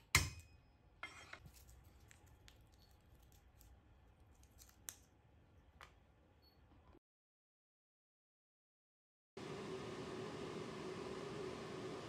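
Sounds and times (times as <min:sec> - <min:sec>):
garlic skin crackling when peeled: 0:01.5 - 0:05.1.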